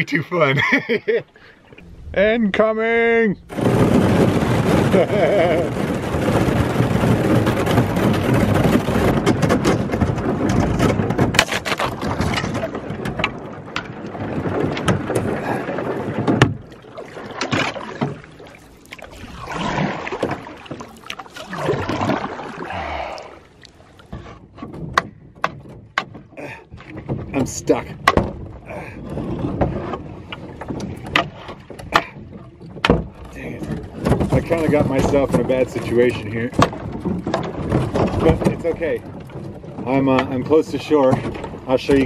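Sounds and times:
canoe hull breaking through ice: 0:01.9 - 0:42.0.

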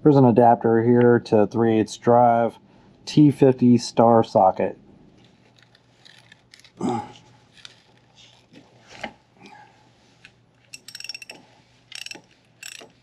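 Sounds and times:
metal tools knocking: 0:10.7 - 0:13.0
socket ratchet clicking: 0:10.7 - 0:13.0.

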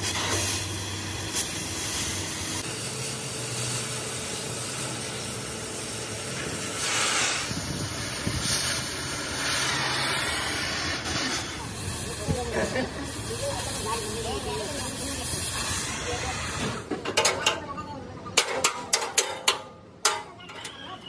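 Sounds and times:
gas cutting torch hissing: 0:00.0 - 0:16.9.

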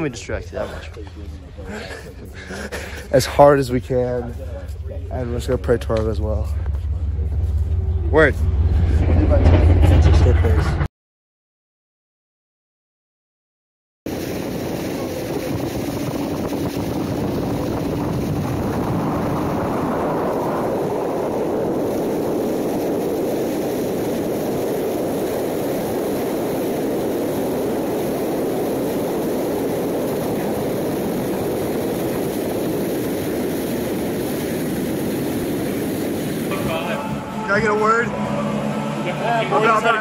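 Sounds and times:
wind: 0:00.0 - 0:10.9, 0:14.1 - 0:40.0
outboard motor running: 0:14.1 - 0:40.0
water noise: 0:14.1 - 0:40.0.

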